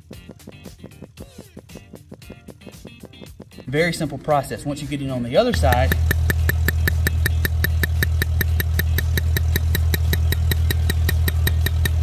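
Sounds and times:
pneumatic boring tool hammering: 5.5s - 12.0s.

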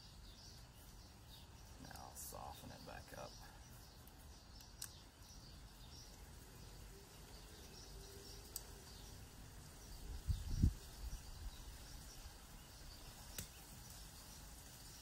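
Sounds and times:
faint clicks: 4.0s - 5.1s, 8.4s - 8.8s, 13.3s - 13.6s.

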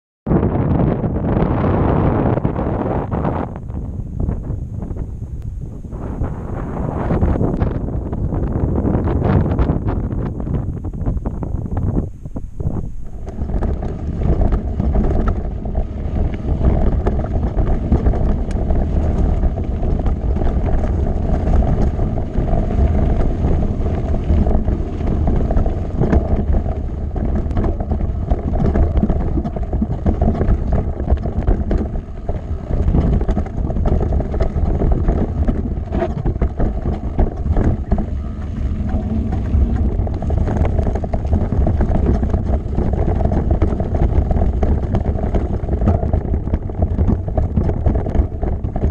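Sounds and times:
wind buffeting microphone: 0.3s - 48.9s
bike rattling: 4.8s - 48.9s
bike tyres crunching over stones: 12.6s - 48.9s.

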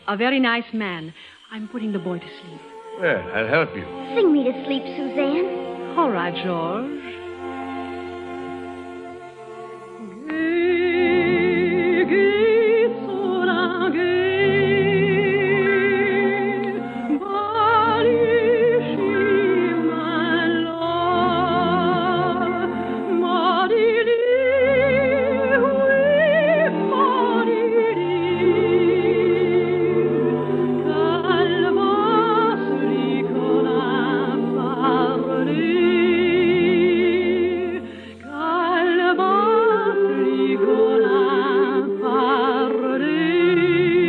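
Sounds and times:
orchestral accompaniment: 1.5s - 44.0s
soprano singing operatic lullaby: 10.0s - 44.0s.

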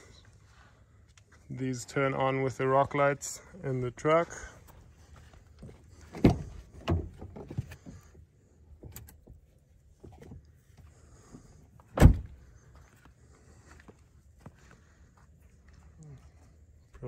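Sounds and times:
car door shutting: 11.9s - 12.4s
car door thump: 12.0s - 12.3s.

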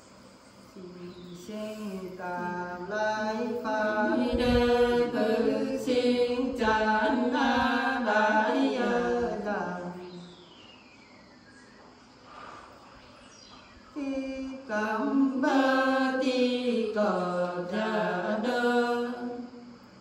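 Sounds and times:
women singing unaccompanied: 0.7s - 10.6s, 13.9s - 19.9s.

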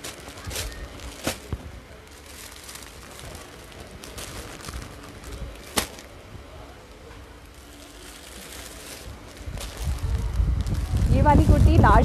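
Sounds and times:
plastic packet crinkling: 0.0s - 6.1s, 7.5s - 11.6s.

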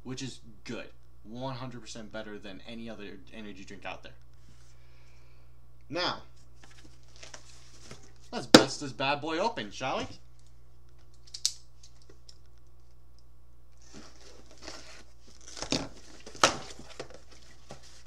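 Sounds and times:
sharp click: 11.2s - 11.6s
packaging tearing and crinkling: 13.8s - 17.7s.

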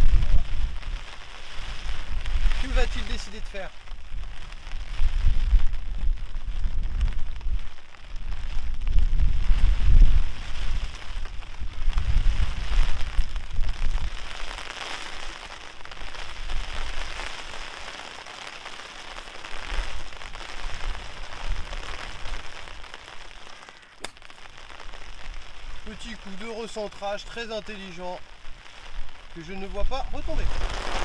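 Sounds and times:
wind buffeting microphone: 0.0s - 14.6s
steady rain: 0.0s - 31.0s
golf club striking ball: 24.0s - 24.2s.

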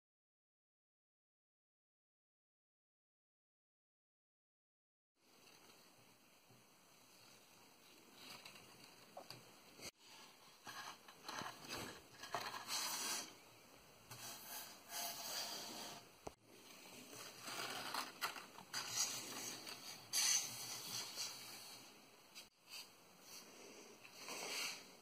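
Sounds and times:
paper rustling and scraping on card: 8.1s - 13.4s, 16.7s - 23.4s.

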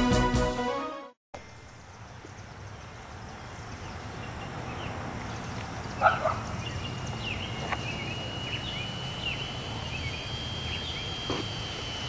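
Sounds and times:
small birds chirping: 1.4s - 12.0s
low background hum: 5.0s - 12.0s
thin high whine: 6.6s - 12.0s.

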